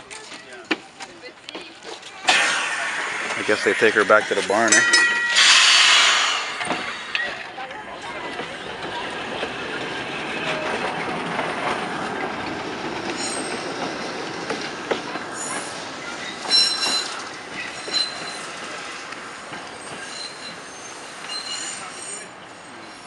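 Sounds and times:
streetcar wheels rumbling on rails: 0.0 - 23.0
high-pitched wheel squeals: 2.3 - 7.5, 13.2 - 13.6, 15.4 - 18.6, 19.8 - 22.9.

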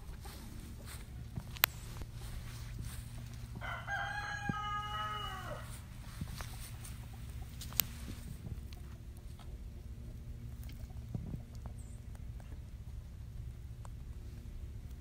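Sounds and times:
steady low hum: 0.0 - 15.0
rooster crowing: 3.5 - 5.9.

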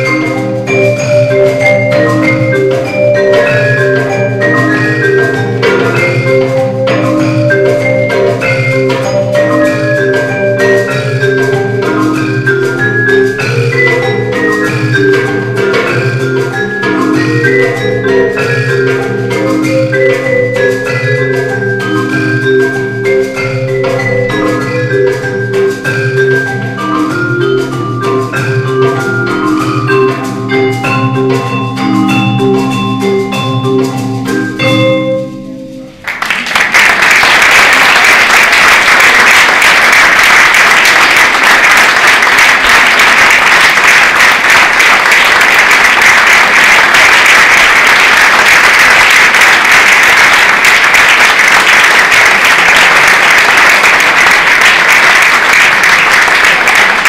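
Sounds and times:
marimba and mallet percussion piece: 0.0 - 36.2, 37.6 - 57.0
audience applause: 36.0 - 57.0.

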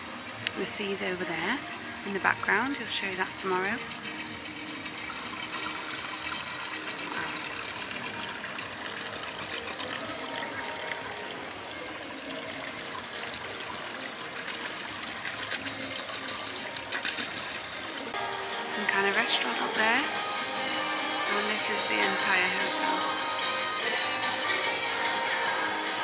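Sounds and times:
water trickling and splashing: 0.0 - 26.0.

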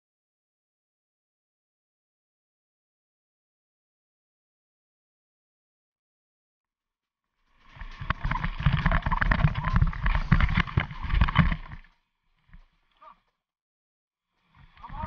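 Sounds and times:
knocks and scrapes: 7.6 - 11.9.

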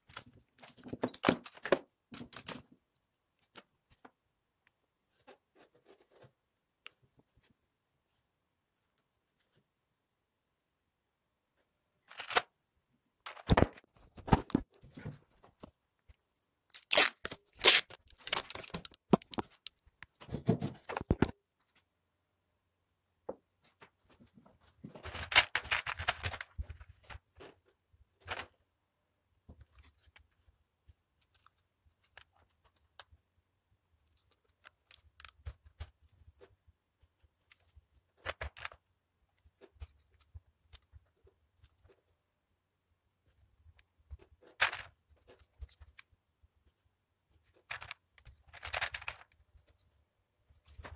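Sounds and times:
plastic parts rattling and clicking: 16.7 - 21.4, 24.7 - 27.6, 34.0 - 36.6, 44.0 - 46.1, 47.4 - 49.9.

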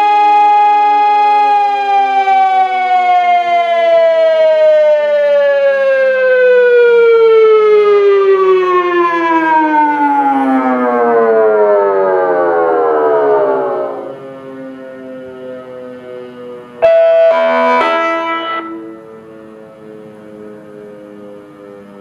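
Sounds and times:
electronic siren gliding down: 0.0 - 22.0.

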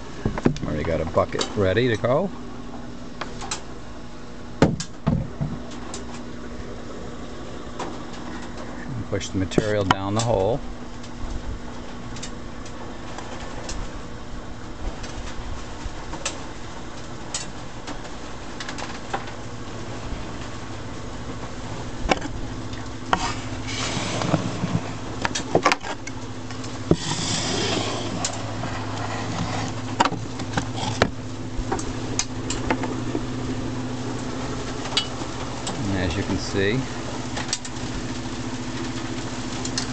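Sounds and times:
rotating drum motor hum: 0.0 - 39.9
compost rustling and scraping: 23.0 - 32.1.

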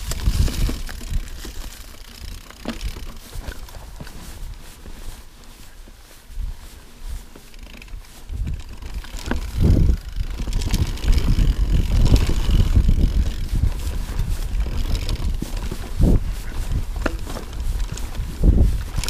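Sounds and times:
tyres rumbling over rocks: 0.0 - 4.2, 8.4 - 19.0
wind on microphone: 0.0 - 4.9, 6.3 - 19.0
bike rattling and clicking: 0.0 - 19.0.

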